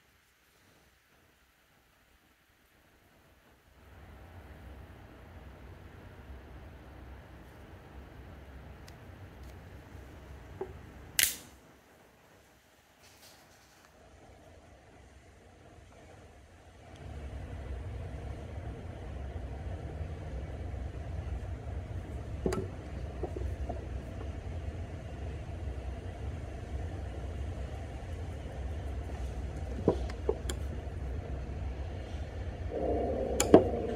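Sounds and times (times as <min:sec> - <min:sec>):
sharp clicks: 0:11.2 - 0:11.6
low machine rumble: 0:14.0 - 0:33.9.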